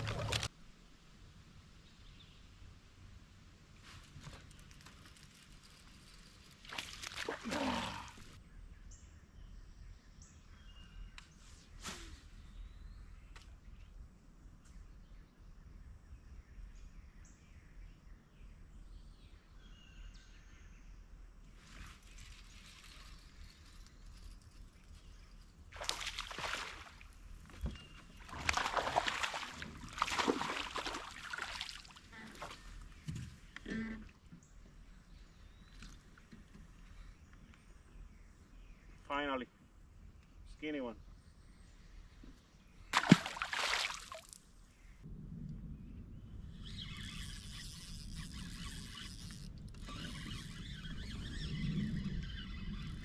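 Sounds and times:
fish splashing in water: 25.8 - 27.1, 28.2 - 32.1, 43.0 - 44.3
fishing reel line whirring: 46.6 - 53.0.

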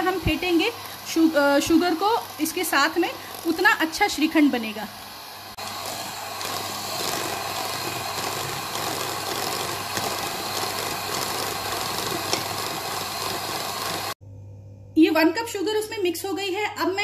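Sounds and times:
electric hand mixer whipping: 0.0 - 14.2.

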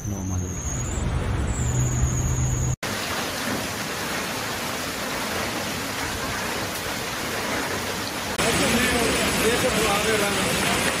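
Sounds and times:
hail and heavy rain on ground: 2.8 - 11.0.

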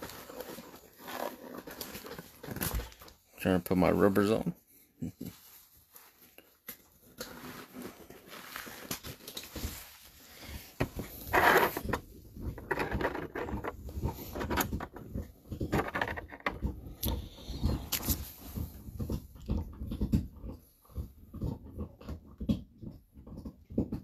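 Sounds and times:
rustles: 5.0 - 11.9.

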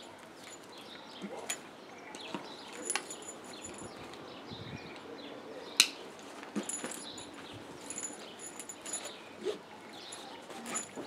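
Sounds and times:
birds chirping: 0.0 - 11.0
backpack rustling: 6.1 - 11.0.

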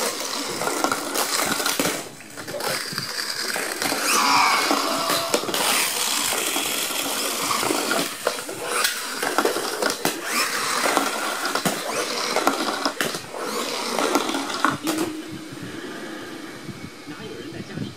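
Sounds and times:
toy train motors whirring: 0.0 - 17.1.

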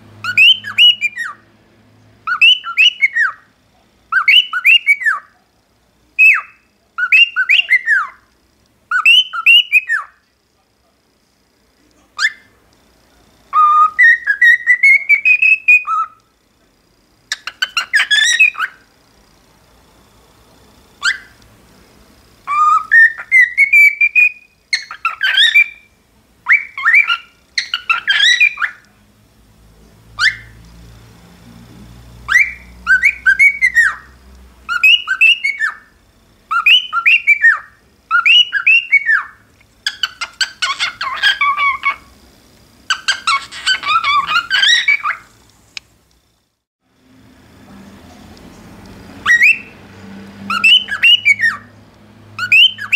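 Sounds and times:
cockatiel whistling: 0.2 - 1.4, 2.3 - 3.5, 4.1 - 5.3, 6.2 - 8.2, 8.9 - 10.2, 12.2 - 12.5, 13.5 - 16.2, 17.3 - 18.8, 21.0 - 21.4, 22.5 - 28.9, 30.2 - 30.6, 32.3 - 34.1, 34.7 - 35.9, 36.5 - 42.1, 42.9 - 45.3, 49.2 - 49.8, 50.5 - 51.7, 52.4 - 52.9.

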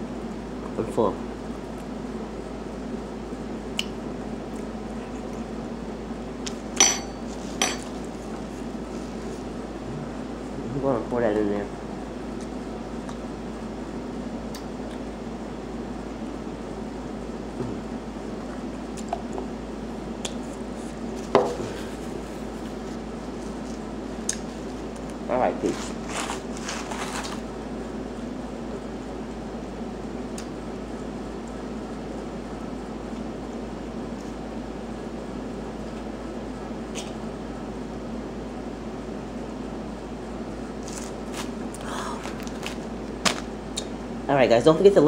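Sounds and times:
low room hum: 0.0 - 45.0
tableware clinking: 6.8 - 7.9.

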